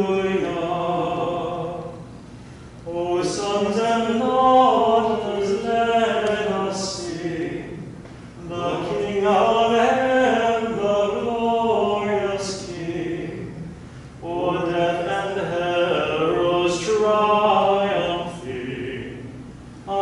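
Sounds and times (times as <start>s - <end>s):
person chanting unaccompanied: 2.9s - 7.8s, 8.4s - 13.6s, 14.2s - 19.3s.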